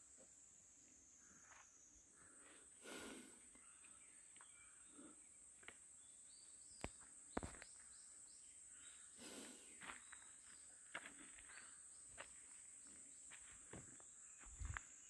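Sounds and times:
insects droning: 0:00.0 - 0:15.0
footsteps on forest litter: 0:09.2 - 0:14.9.

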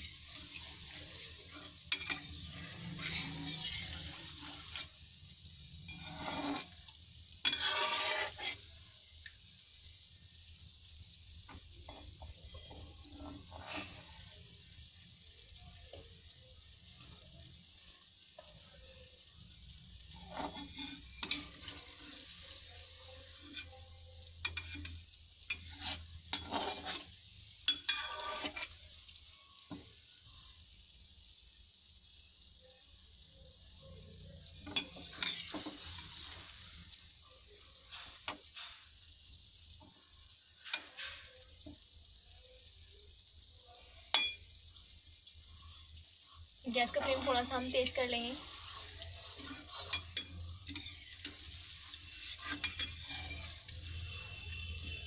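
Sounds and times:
metal spoon scraping and clinking: 0:00.0 - 0:05.0, 0:05.7 - 0:06.8, 0:07.4 - 0:08.7, 0:11.5 - 0:14.2, 0:20.1 - 0:28.8, 0:34.6 - 0:36.6, 0:44.1 - 0:44.4, 0:46.8 - 0:54.7
dough sizzling in hot oil: 0:00.0 - 0:55.0.

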